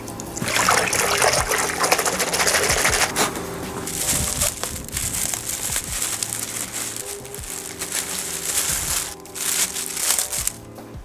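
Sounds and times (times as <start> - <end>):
water sloshing in a bucket: 0.3 - 3.2.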